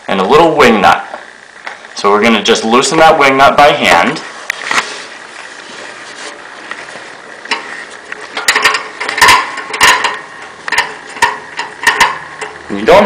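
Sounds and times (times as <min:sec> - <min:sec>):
sharp metallic clicks and scrapes: 0:07.5 - 0:12.9.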